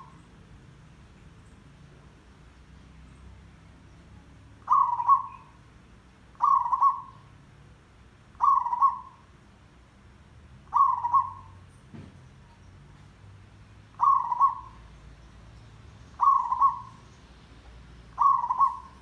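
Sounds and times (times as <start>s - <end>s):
dove cooing: 4.6s - 5.5s, 6.4s - 7.2s, 8.4s - 9.2s, 10.7s - 11.6s, 14.0s - 14.8s, 16.2s - 17.0s, 18.1s - 19.0s.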